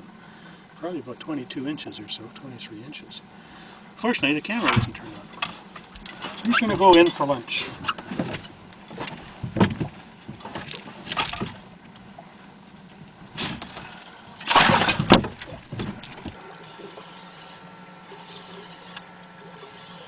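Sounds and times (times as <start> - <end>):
knocks and clattering in boat: 4.1 - 12.2, 12.9 - 16.4.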